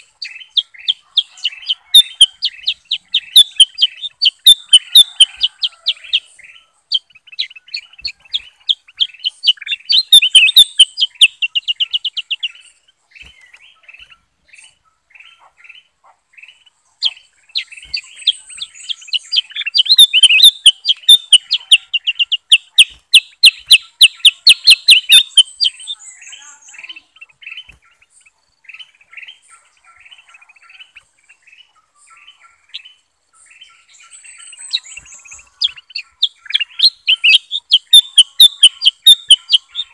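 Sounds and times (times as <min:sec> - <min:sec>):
caged birds singing and chirping: 0:00.0 - 0:39.9
rapid high bird notes: 0:02.0 - 0:06.0, 0:09.0 - 0:12.7, 0:17.6 - 0:26.0, 0:34.8 - 0:39.9.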